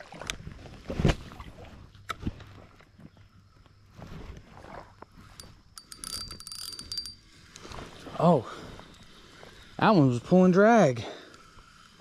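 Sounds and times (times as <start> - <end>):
fishing reel clicking and whirring: 5.2 - 7.8.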